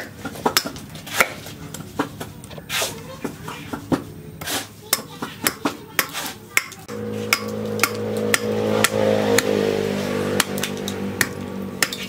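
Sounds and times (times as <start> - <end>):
knife chopping wood: 0.0 - 2.9, 3.8 - 9.6, 10.3 - 12.0
steady low hum: 5.8 - 12.0.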